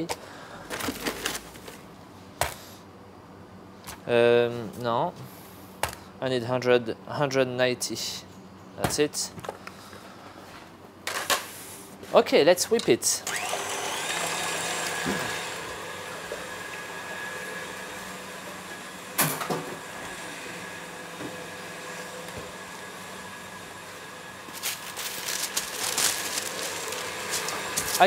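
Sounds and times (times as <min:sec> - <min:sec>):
stand mixer whisking: 0:13.3 - 0:17.9, 0:26.7 - 0:28.0.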